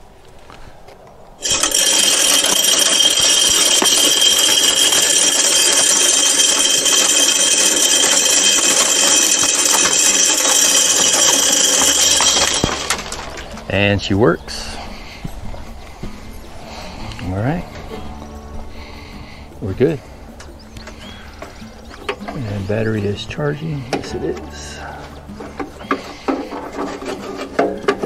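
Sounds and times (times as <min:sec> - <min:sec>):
corn rattling off metal: 0:01.4 - 0:15.1, 0:20.9 - 0:28.0.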